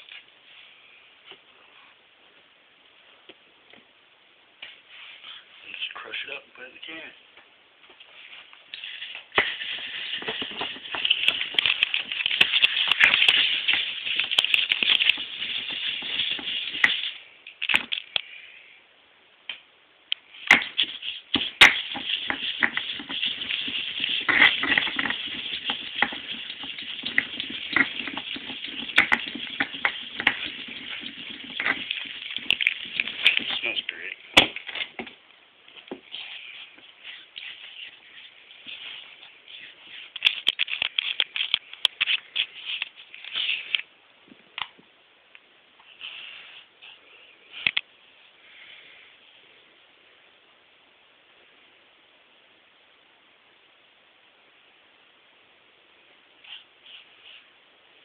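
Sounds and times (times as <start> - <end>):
pestle grinding in mortar: 20.6 - 33.5.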